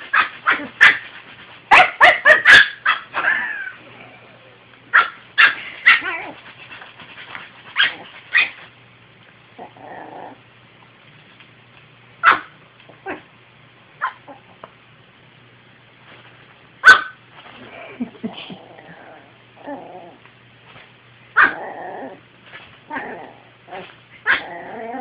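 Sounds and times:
small dog barking: 0.1 - 1.0, 1.7 - 3.1, 4.9 - 6.4, 12.2 - 13.2, 16.8 - 17.2, 21.4 - 21.6, 24.2 - 24.5.

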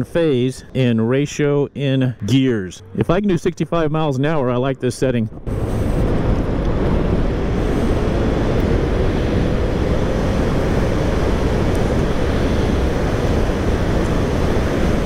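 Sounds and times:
road noise: 0.0 - 15.0
wind rushing: 5.3 - 15.0
electric motorcycle accelerating: 5.5 - 15.0.

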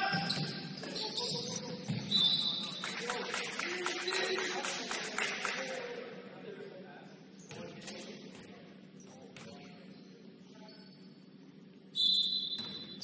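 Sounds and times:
sneaker squeak: 0.0 - 2.8, 9.0 - 11.3, 11.9 - 13.0.

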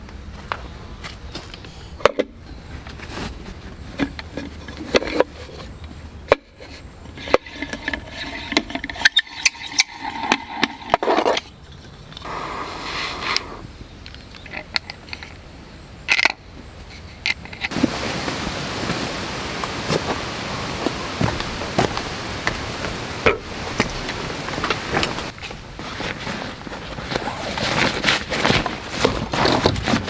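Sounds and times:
wood scraping: 6.5 - 13.6, 16.8 - 30.0.

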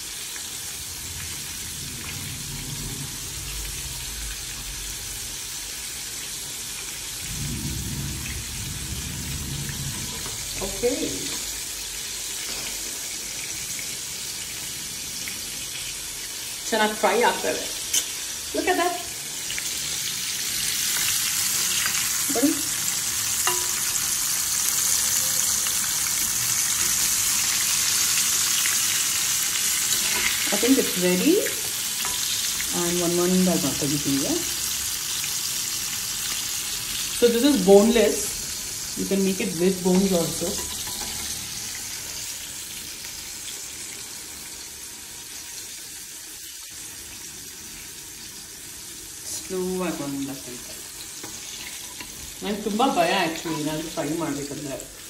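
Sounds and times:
food sizzling in hot oil: 0.0 - 55.0
metal spoon stirring: 23.4 - 24.1, 29.9 - 30.6, 40.4 - 41.4.

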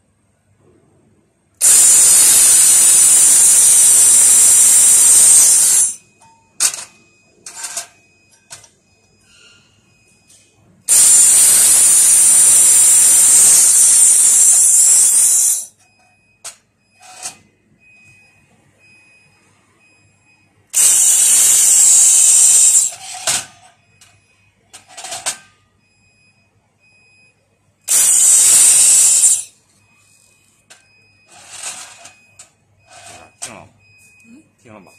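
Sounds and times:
laser welder hissing: 1.6 - 6.0, 10.9 - 15.7, 20.8 - 22.9, 27.9 - 29.5.

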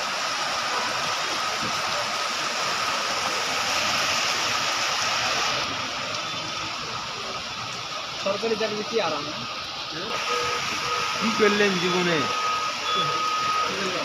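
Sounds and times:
heavy rain on street: 0.0 - 14.0.

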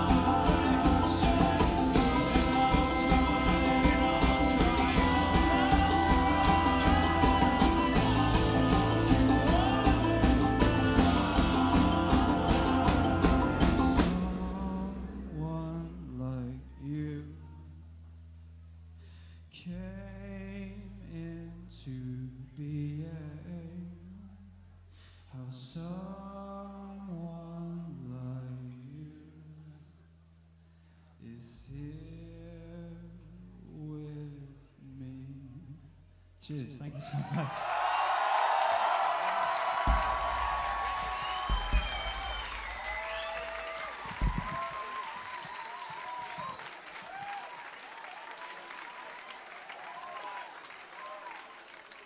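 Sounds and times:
live rock band playing: 0.0 - 14.7
steady drum beat: 0.0 - 15.0, 39.4 - 46.1
man singing: 0.0 - 17.6, 19.5 - 24.5, 25.3 - 29.6, 31.2 - 37.6.

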